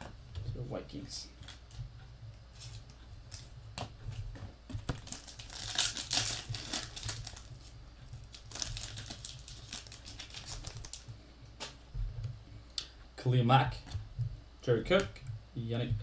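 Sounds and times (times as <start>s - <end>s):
foil wrapper crinkling and tearing: 4.9s - 11.1s.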